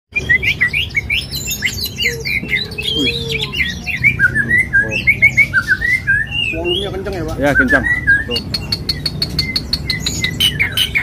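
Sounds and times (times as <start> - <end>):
songbirds chirping: 0.1 - 11.0.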